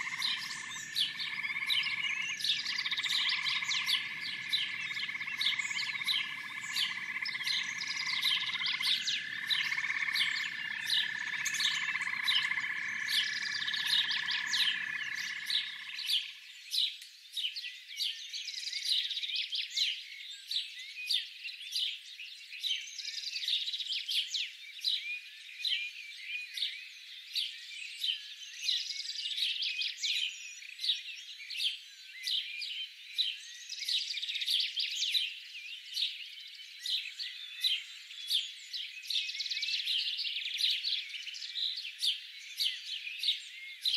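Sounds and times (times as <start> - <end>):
frogs chirping: 0.0 - 16.4.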